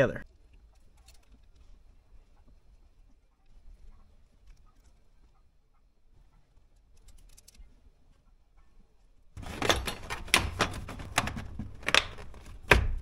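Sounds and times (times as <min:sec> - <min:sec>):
metal tools clicking and knocking: 0:09.4 - 0:13.0.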